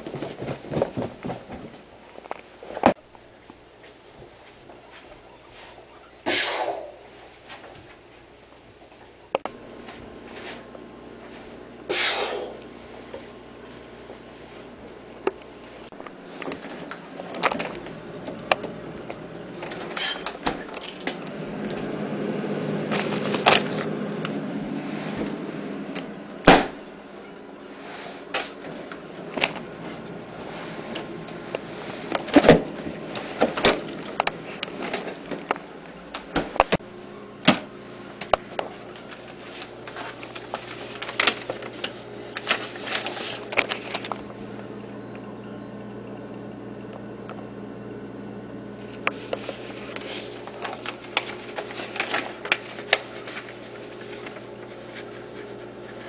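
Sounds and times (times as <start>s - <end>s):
steady low hum: 0.0s - 56.0s
fridge items clicking and knocking: 16.4s - 21.9s, 22.8s - 24.4s, 30.9s - 36.8s.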